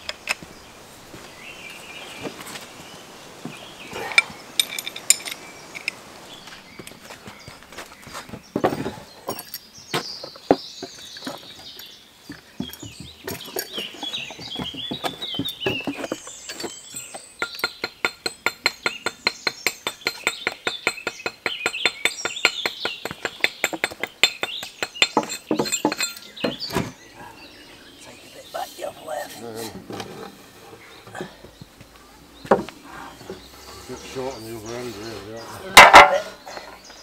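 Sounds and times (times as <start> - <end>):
birds singing: 0.0 - 37.0
metal pipe fittings clinking: 4.6 - 6.0, 9.3 - 9.6, 16.5 - 18.7, 23.6 - 26.4.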